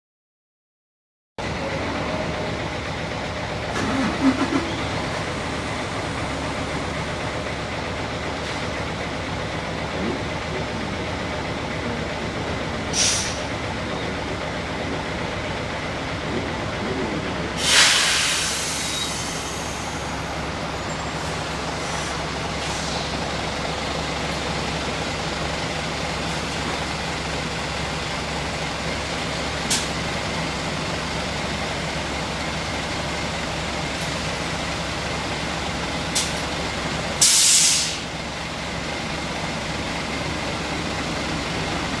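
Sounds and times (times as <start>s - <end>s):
diesel bus idling: 1.4s - 42.0s
compressed air hisses: 13.0s - 13.5s, 17.6s - 19.7s, 37.2s - 38.1s.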